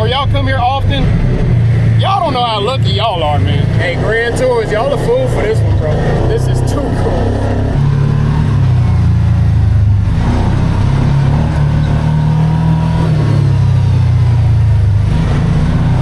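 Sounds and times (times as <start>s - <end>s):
engine running while driving: 0.0s - 16.0s.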